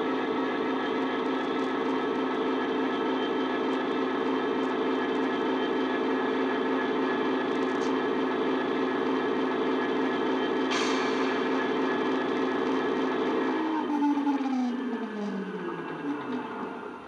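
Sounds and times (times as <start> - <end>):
diesel engine drone from small speaker: 0.0 - 17.0.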